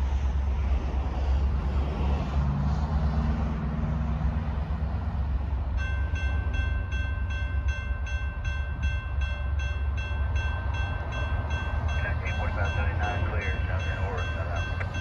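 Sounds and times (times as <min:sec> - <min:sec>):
crossing bell clanging: 0:05.7 - 0:15.0.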